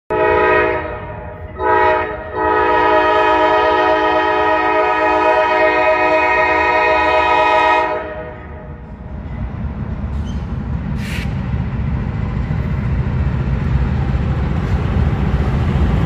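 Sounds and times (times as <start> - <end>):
locomotive air horn blasts: 0.1 - 8.7
diesel locomotives rumbling: 0.1 - 16.0.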